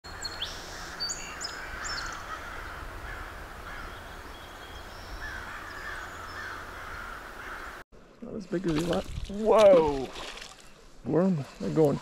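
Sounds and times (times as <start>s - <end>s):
birds chirping: 0.1s - 8.6s
harsh bird calls: 0.2s - 7.8s.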